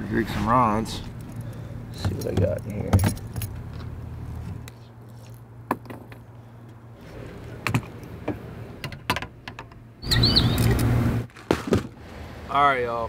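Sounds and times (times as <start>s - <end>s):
gear clicks and knocks: 1.2s - 4.8s.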